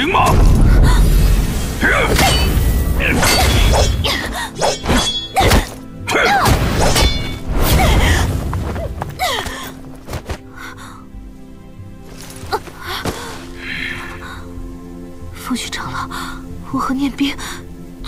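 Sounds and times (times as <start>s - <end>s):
dramatic soundtrack music: 0.0s - 18.0s
fight thuds and whacks: 3.1s - 8.0s.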